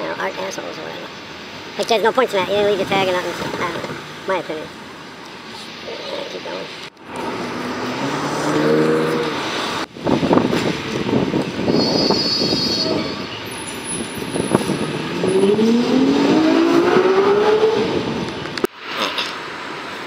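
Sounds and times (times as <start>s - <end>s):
vehicle engines: 0.0s - 20.0s
engine note rising in pitch: 7.3s - 9.5s, 14.1s - 18.2s.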